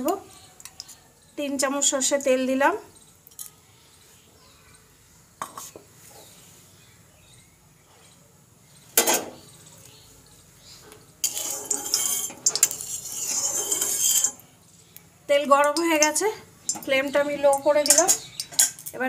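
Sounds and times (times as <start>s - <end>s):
metal utensils clinking on pan: 9.0s - 9.4s, 11.2s - 14.5s, 15.6s - 19.0s
utensils scraping pan: 11.2s - 14.5s, 15.7s - 18.9s.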